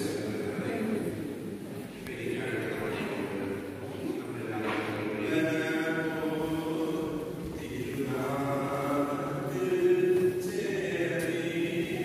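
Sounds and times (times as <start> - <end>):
group singing a hymn: 4.2 - 12.0.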